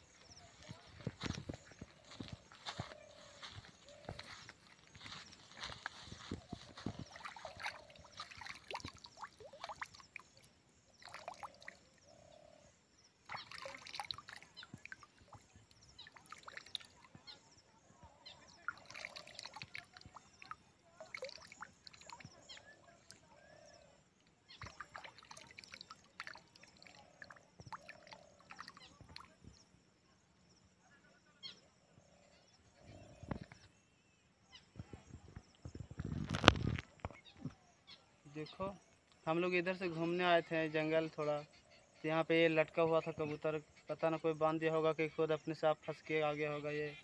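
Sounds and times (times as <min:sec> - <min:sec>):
water splashing and dripping from hand: 0:06.8 - 0:11.8, 0:13.3 - 0:17.1, 0:18.6 - 0:22.4, 0:24.6 - 0:29.3.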